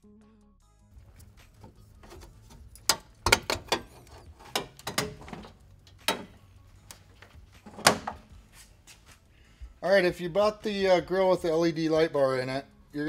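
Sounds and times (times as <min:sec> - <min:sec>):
plastic clips clicking and knocking: 0:02.8 - 0:06.3.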